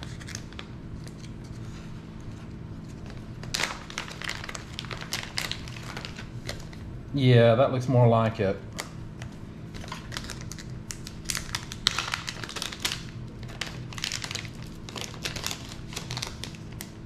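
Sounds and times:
plastic bags crinkling: 0:03.0 - 0:06.8, 0:09.7 - 0:17.0.

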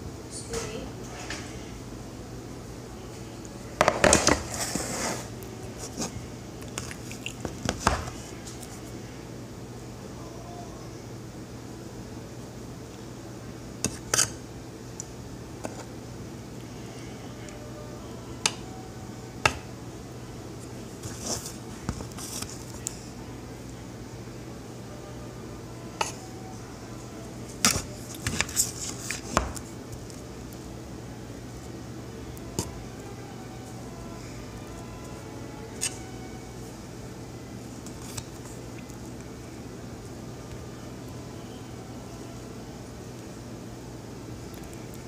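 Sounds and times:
steady low hum: 0:00.0 - 0:45.0
frosting scraping and squishing: 0:04.0 - 0:08.9.

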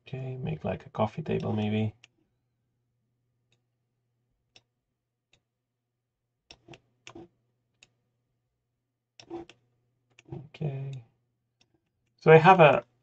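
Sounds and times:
computer mouse clicking: 0:01.3 - 0:02.2, 0:06.5 - 0:08.0, 0:09.2 - 0:11.0.

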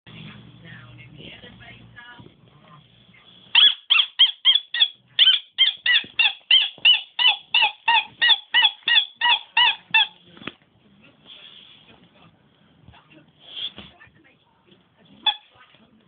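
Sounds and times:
dog squeaking: 0:03.5 - 0:10.2, 0:15.2 - 0:15.5.

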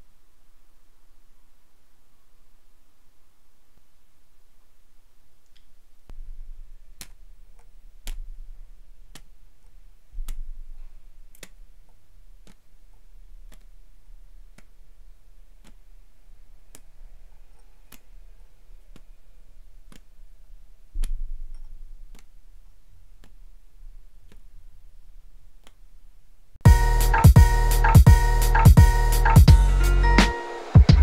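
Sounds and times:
dull low thumps: 0:26.6 - 0:29.8
steady ticking: 0:26.6 - 0:31.0.

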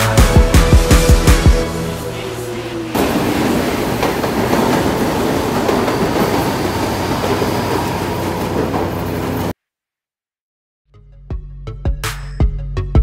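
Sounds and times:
electric train passing at speed: 0:00.0 - 0:09.5
train wheels on rails: 0:00.1 - 0:09.5.

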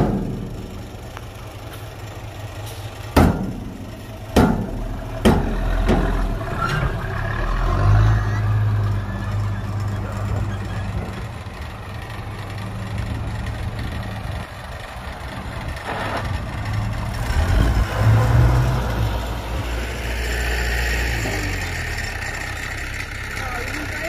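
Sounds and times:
diesel engines rumbling: 0:00.0 - 0:24.0.

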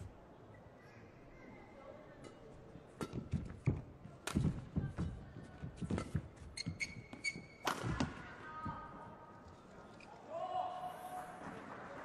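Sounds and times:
rackets striking shuttlecock: 0:03.0 - 0:04.6, 0:07.6 - 0:08.1
shoe squeaks: 0:06.0 - 0:07.7.

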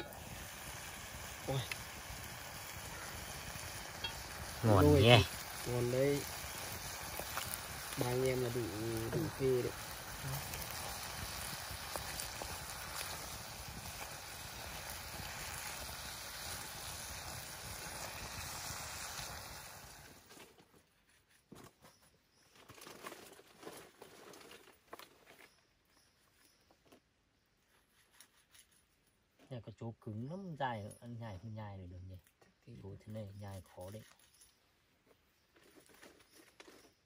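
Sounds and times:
handling clicks and rustles: 0:33.9 - 0:37.0.

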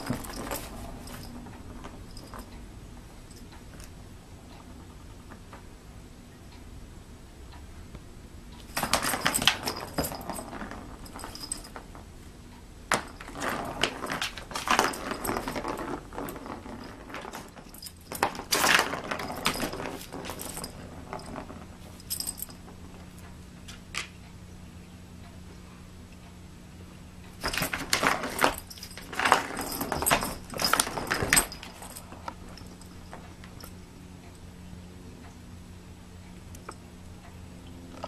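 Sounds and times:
plastic ball rattling on plastic track: 0:13.0 - 0:21.7.

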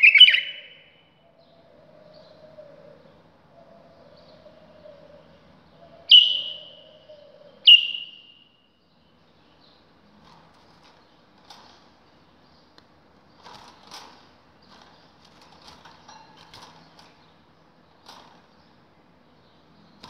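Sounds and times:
bird calling sharply: 0:00.0 - 0:00.9, 0:06.1 - 0:06.9, 0:07.6 - 0:08.4
faint rustling and clicks: 0:09.7 - 0:18.9.

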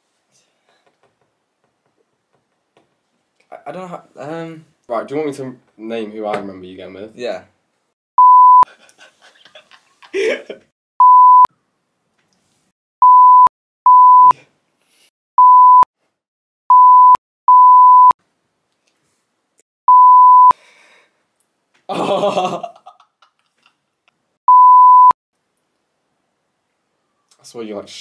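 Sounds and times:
censor bleeps: 0:08.2 - 0:08.6, 0:11.0 - 0:11.5, 0:13.0 - 0:14.3, 0:15.4 - 0:15.9, 0:16.7 - 0:18.2, 0:19.9 - 0:20.5, 0:24.5 - 0:25.2.

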